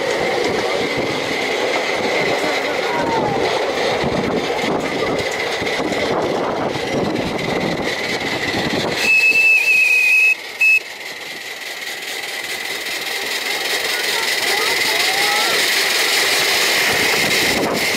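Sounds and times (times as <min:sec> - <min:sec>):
train wheels rumbling on track: 0:00.0 - 0:17.9
train whistle: 0:09.0 - 0:10.9.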